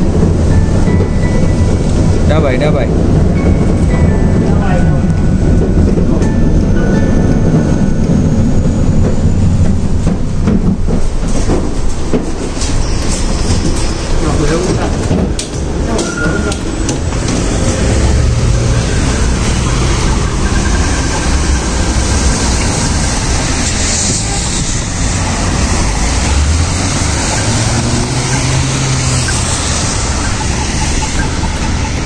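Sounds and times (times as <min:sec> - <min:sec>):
traffic on wet road: 0:00.0 - 0:06.2, 0:12.2 - 0:32.0
low rumble: 0:00.0 - 0:12.2, 0:14.4 - 0:32.0
rain shower on street: 0:20.8 - 0:32.0.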